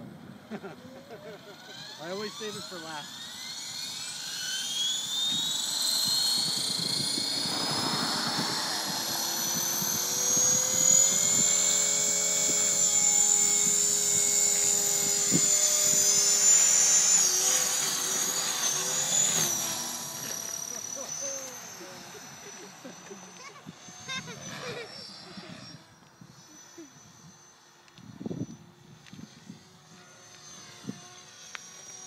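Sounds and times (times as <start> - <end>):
rc helicopter motor whine: 0.0 - 32.0
rush of rotor blades: 0.2 - 32.0.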